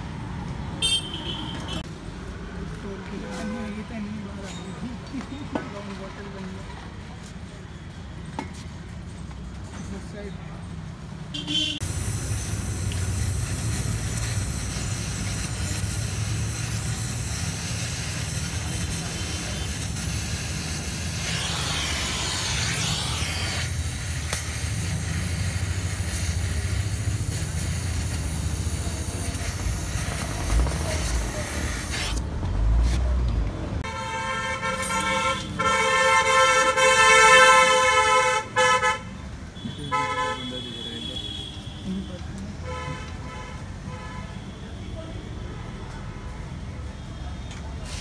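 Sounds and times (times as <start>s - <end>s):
gas torch flame hissing: 11.8s - 32.2s.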